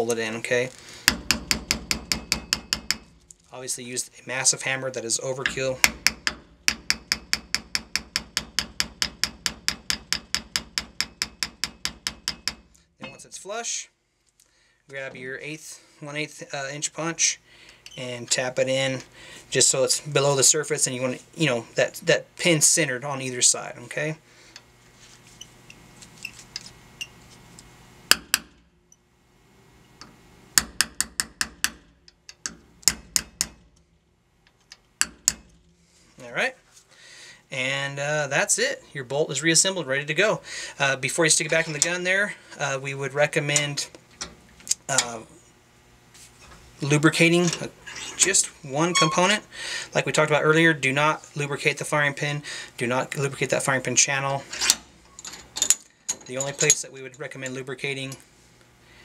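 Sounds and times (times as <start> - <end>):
hammer tapping metal pin: 1.1 - 3.1, 5.4 - 13.2.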